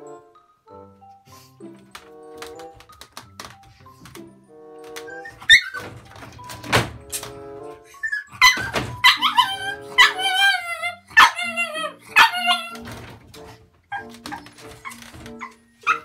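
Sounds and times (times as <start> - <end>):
puppy whining and yelping: 5.1 - 5.9, 7.9 - 12.8, 13.9 - 16.0.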